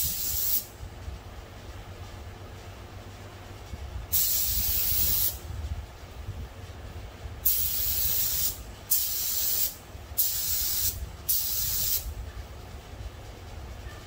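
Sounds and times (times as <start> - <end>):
spray gun hissing: 0.0 - 0.7, 4.1 - 5.4, 7.4 - 12.1.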